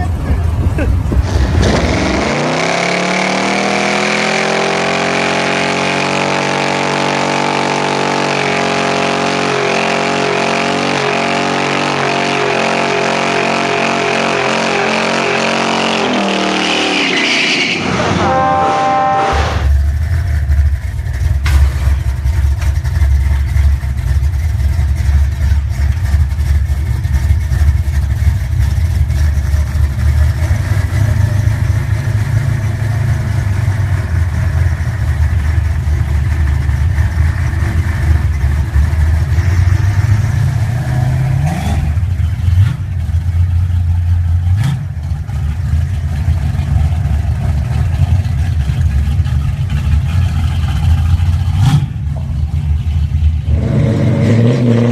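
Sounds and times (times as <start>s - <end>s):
car engine idling and revving: 0.0s - 54.9s.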